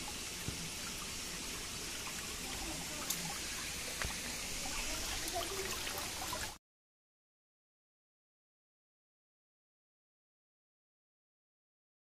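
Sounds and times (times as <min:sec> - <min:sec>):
water dripping and trickling: 0:00.0 - 0:06.6.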